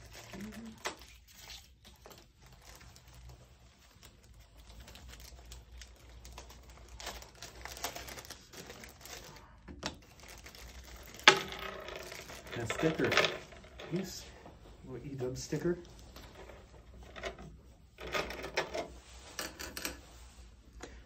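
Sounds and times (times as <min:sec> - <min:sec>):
plastic bags crinkling: 0:00.0 - 0:11.4.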